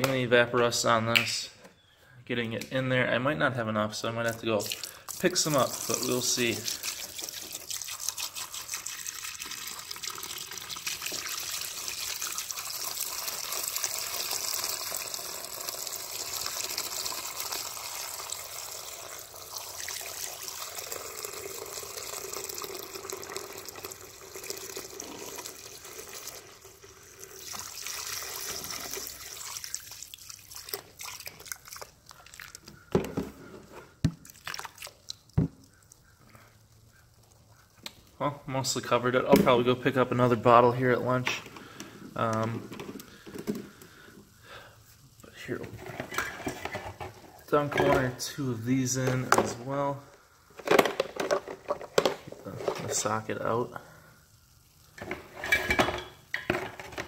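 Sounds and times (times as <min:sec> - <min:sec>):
liquid pouring into plastic bucket: 0:04.3 - 0:32.7, 0:34.1 - 0:35.9.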